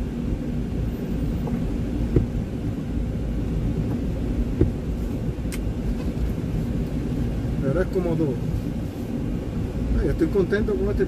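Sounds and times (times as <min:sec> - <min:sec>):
truck engine rumble: 0:00.0 - 0:11.0
dull thumps: 0:01.4 - 0:02.5, 0:03.8 - 0:05.0.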